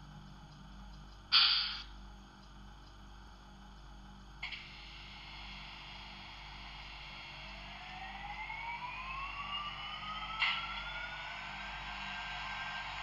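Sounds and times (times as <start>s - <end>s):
sharp metal clank: 1.3s - 1.8s
model locomotive electric whine: 4.4s - 13.0s.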